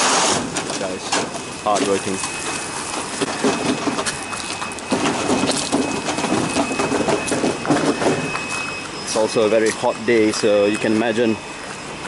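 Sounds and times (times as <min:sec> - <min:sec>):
water splashing and sloshing: 0:02.2 - 0:08.9.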